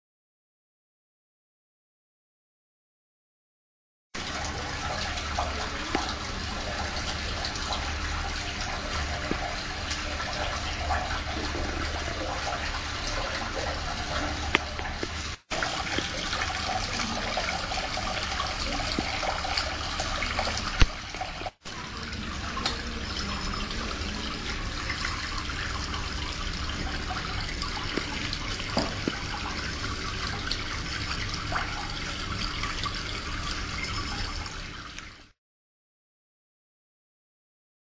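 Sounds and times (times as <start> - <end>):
water spraying on a device: 4.2 - 31.1.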